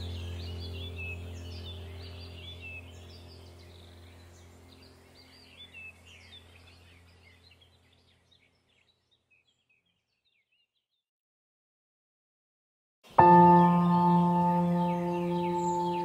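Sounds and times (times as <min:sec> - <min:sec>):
low drone: 0:00.0 - 0:07.3, 0:13.2 - 0:16.0
birds chirping: 0:00.0 - 0:10.9, 0:13.1 - 0:16.0.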